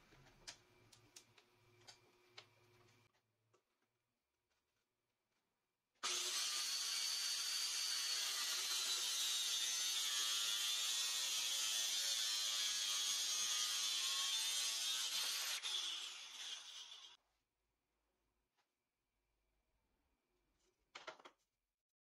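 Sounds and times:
angle grinder cutting wood: 6.0s - 17.2s.

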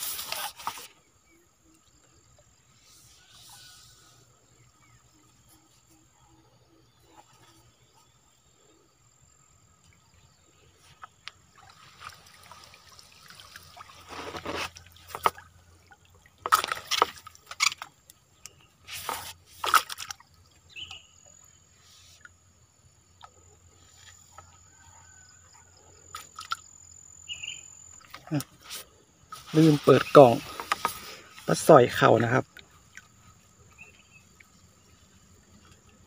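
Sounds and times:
water sloshing and splashing: 9.7s - 27.2s, 27.8s - 36.0s.

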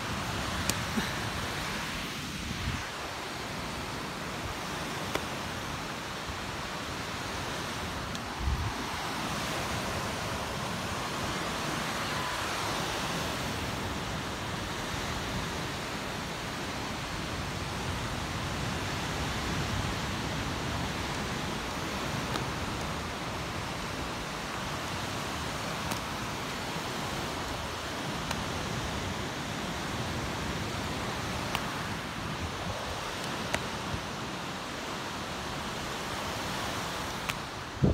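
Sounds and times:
surf breaking on beach: 0.0s - 37.9s.

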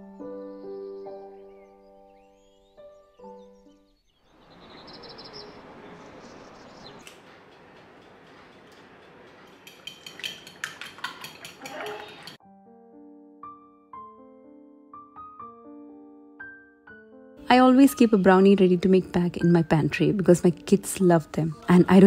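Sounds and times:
utensil clicking against bowl: 7.0s - 12.4s
egg cracking on bowl: 9.4s - 12.4s.

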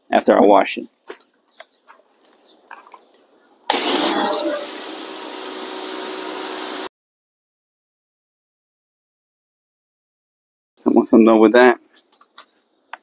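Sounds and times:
motor and pump hum: 3.7s - 6.9s
pressure washer spray hiss: 3.7s - 6.9s.

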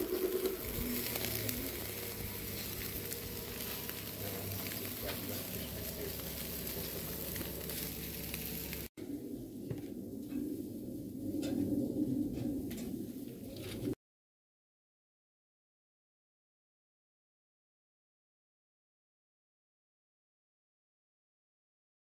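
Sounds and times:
meat sizzling on a grill: 0.0s - 8.9s.

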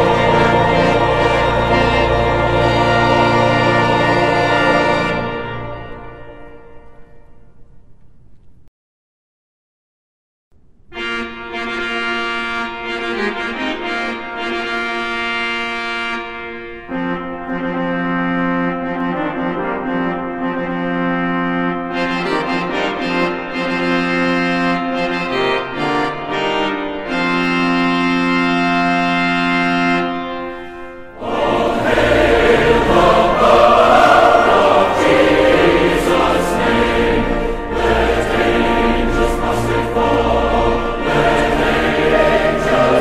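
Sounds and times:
choir singing: 0.0s - 6.2s, 31.1s - 43.0s
slow instrumental chords: 30.0s - 43.0s.

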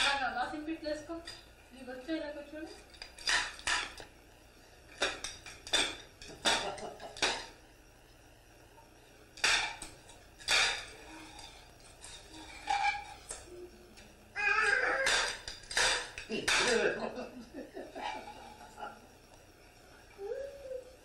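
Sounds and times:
toys clattering on hard floor: 5.0s - 7.5s, 9.4s - 13.4s, 15.0s - 17.0s.

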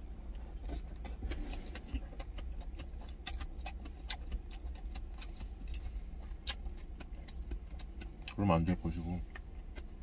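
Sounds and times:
steady low rumble: 0.0s - 10.0s
person sipping and chewing: 0.4s - 8.0s.

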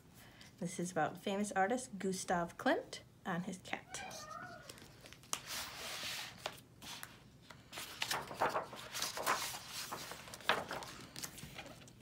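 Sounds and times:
book pages turning: 4.6s - 12.0s.

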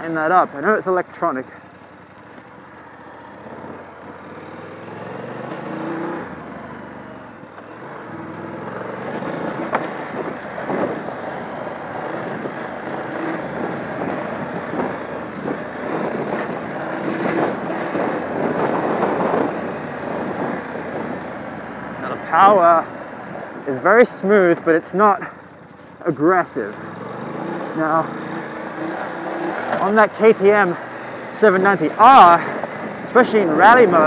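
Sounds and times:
motorcycle engine at low revs: 0.0s - 23.6s, 24.3s - 34.0s
tyres riding over rough gravel: 9.0s - 34.0s.

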